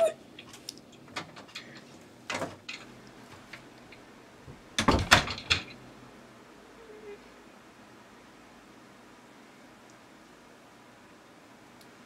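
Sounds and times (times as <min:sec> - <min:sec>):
knocks and bumps on door: 0:04.8 - 0:05.6.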